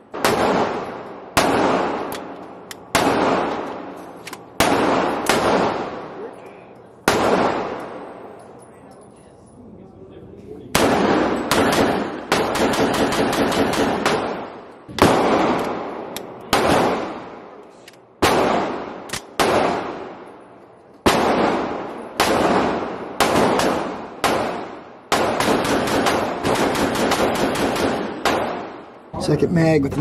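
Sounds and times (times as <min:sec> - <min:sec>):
gunshots ringing indoors: 0:00.1 - 0:06.2, 0:07.0 - 0:08.2, 0:10.7 - 0:17.4, 0:18.2 - 0:20.3, 0:21.0 - 0:28.9.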